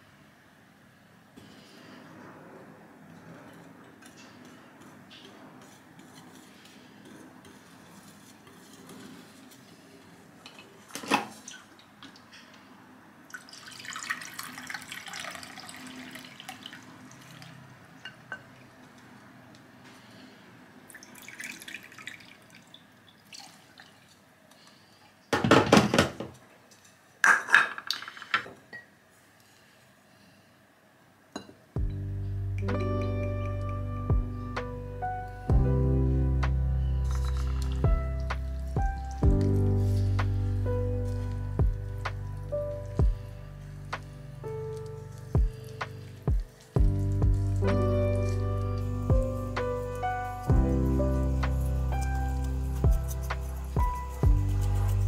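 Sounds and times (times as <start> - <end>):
whisk scraping through flour: 4.8 - 9.6
water pouring: 13.3 - 17.8, 20.9 - 24.2, 37.1 - 39.2.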